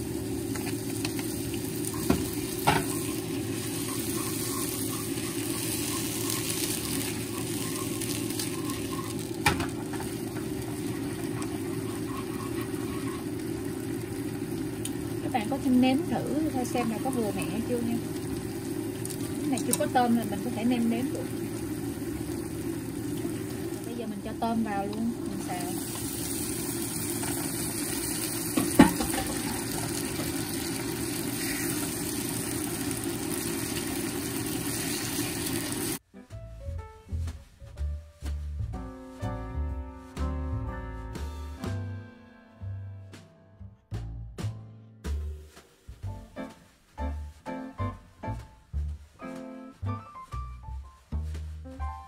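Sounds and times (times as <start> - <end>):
low machine hum: 0.0 - 36.0
sauce sizzling in a frying pan: 0.0 - 36.0.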